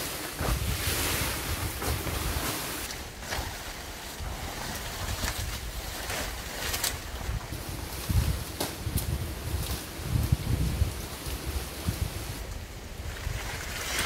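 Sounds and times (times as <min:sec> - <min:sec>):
plastic sheet flapping: 0:00.0 - 0:14.0
wind hissing through forest: 0:00.0 - 0:14.0
wind rumbling on microphone: 0:00.0 - 0:14.0.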